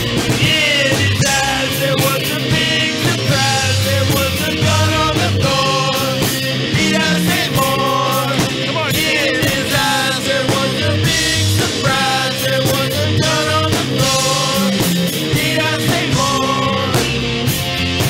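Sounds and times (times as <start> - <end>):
bass guitar: 0.0 - 18.0
drums: 0.0 - 18.0
electric guitars: 0.0 - 18.0.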